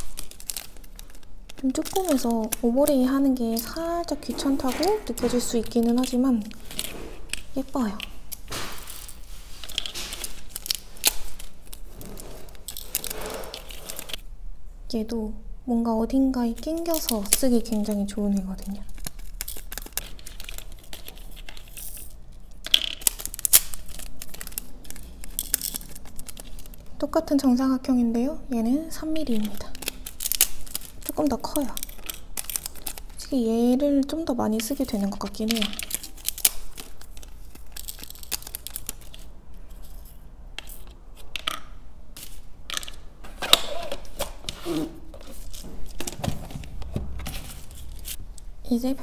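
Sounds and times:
paper rustling: 0.0s - 14.2s, 16.6s - 22.4s, 23.0s - 26.9s, 43.2s - 48.3s
tiny stones clicking and rattling: 0.0s - 14.2s, 16.6s - 27.0s, 29.1s - 33.3s, 34.0s - 43.0s.

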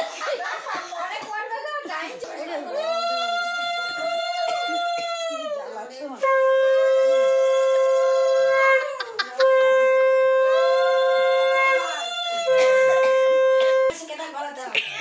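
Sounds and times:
conch shell blasts: 6.2s - 13.9s.

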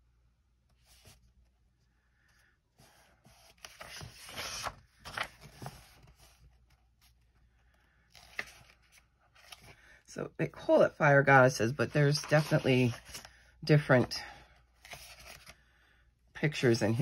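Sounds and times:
paper page rustling: 2.8s - 9.8s, 12.0s - 13.4s, 14.8s - 15.6s.

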